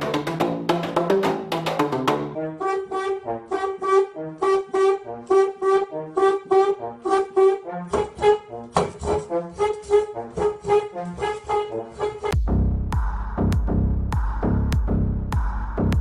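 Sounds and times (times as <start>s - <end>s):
french horn short detached notes: 6.5s - 12.4s.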